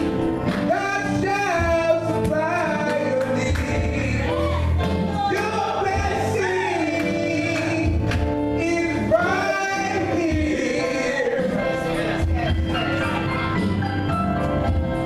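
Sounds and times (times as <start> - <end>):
male choir singing gospel: 0.6 - 13.5.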